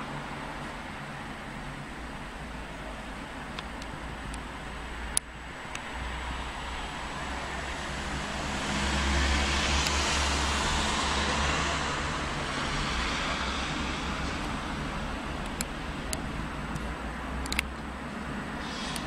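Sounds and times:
steady rushing noise: 0:00.0 - 0:19.0
low hum: 0:03.8 - 0:19.0.

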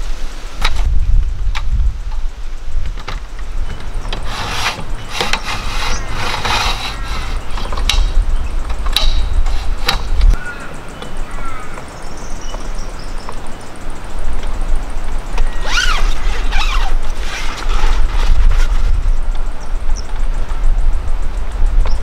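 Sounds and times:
wind rumbling on microphone: 0:00.0 - 0:22.0
ladder and tent creaking: 0:00.6 - 0:11.2, 0:14.2 - 0:19.5.

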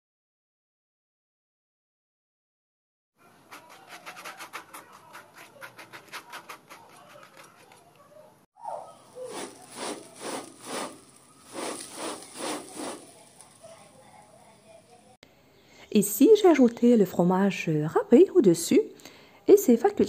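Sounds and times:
pastry brush scratching on crust: 0:03.2 - 0:08.1, 0:09.2 - 0:14.8
hands rubbing over crust: 0:03.4 - 0:08.0, 0:09.2 - 0:13.9.

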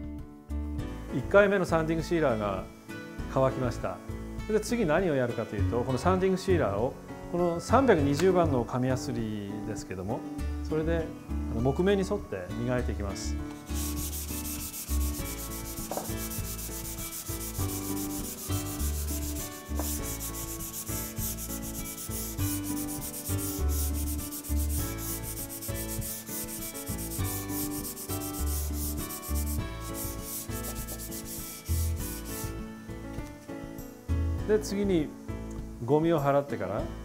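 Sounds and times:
hand sanding wood: 0:13.6 - 0:32.6.

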